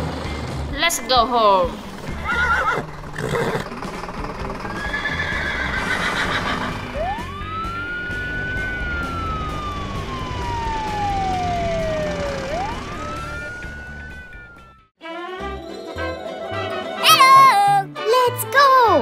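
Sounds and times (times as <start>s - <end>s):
horse whinny: 2.1s - 3.8s, 4.7s - 6.9s
siren wailing: 4.8s - 14.9s.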